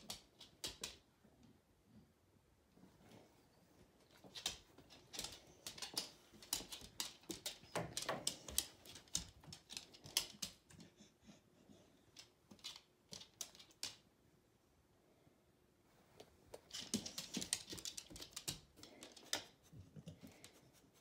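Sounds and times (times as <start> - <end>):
dog playing with treat toy: 16.5 - 19.5.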